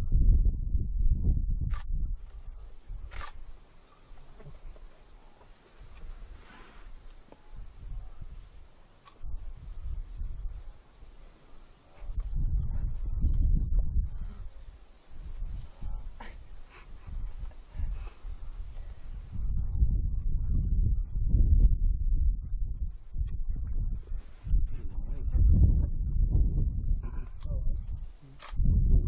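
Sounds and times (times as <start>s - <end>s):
low rumble: 0.0s - 3.3s, 12.1s - 14.5s, 18.9s - 29.0s
single click: 3.1s - 3.4s
insect chirping in high pulses: 5.9s - 17.4s, 18.2s - 23.1s.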